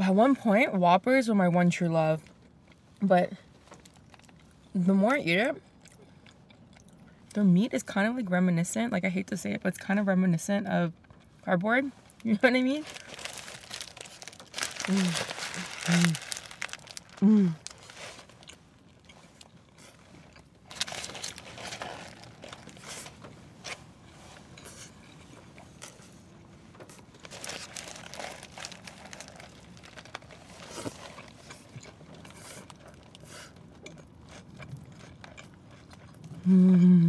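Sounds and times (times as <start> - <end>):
crunching and chewing food: 2.2 - 7.4, 10.9 - 36.9
paper wrapper crinkling: 12.8 - 18.6, 20.7 - 23.2, 27.1 - 31.6
person humming mm: 17.2 - 17.6, 36.4 - 37.0.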